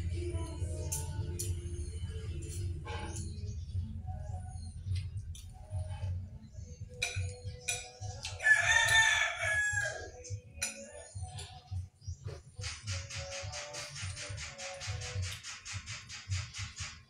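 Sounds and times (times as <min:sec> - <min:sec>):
rooster crowing: 0:08.4 - 0:10.2.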